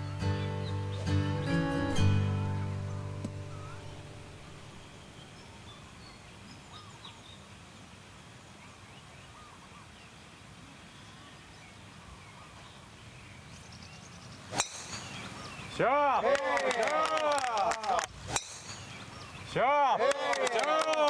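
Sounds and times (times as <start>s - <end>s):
birds chirping: 0.0s - 20.2s
golf club striking ball: 3.2s - 5.5s, 14.5s - 15.5s, 18.2s - 19.1s.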